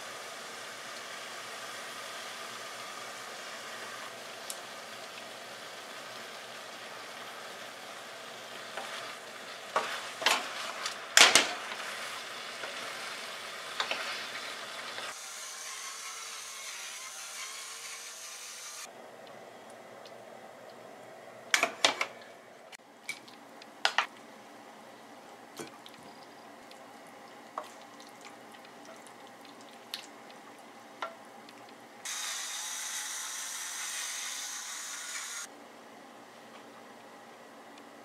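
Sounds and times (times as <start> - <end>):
spatula scraping frying pan: 8.8 - 11.0, 13.8 - 15.1.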